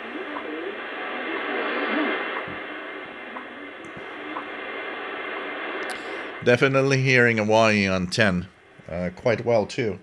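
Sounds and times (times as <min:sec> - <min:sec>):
radio hiss and static: 0:00.0 - 0:10.0
time signal ticks: 0:03.3 - 0:04.5.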